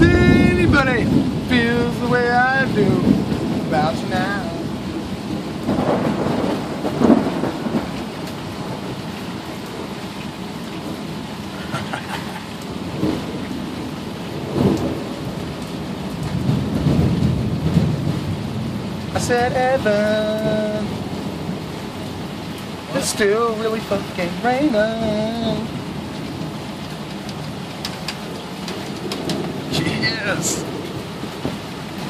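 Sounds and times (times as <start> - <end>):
steady rain: 0.0 - 32.0
thunder rumbling: 0.0 - 32.0.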